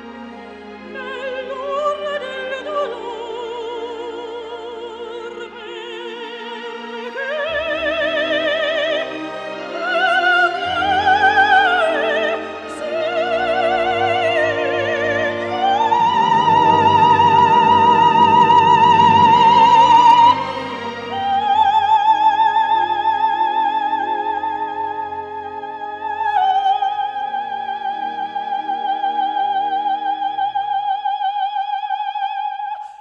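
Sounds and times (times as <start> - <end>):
operatic voice singing: 0.6 - 33.0
instrumental accompaniment: 4.9 - 30.5.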